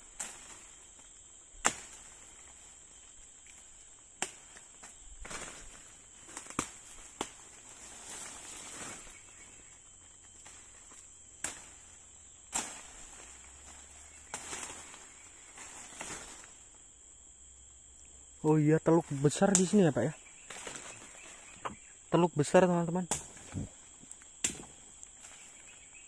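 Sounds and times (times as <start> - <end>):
branches and leaves rustling: 0.0 - 26.0
insects droning: 0.0 - 26.0
sharp knocks and cracks: 1.6 - 2.5, 4.2 - 7.6, 10.4 - 11.9, 12.5 - 13.3, 23.1 - 25.4.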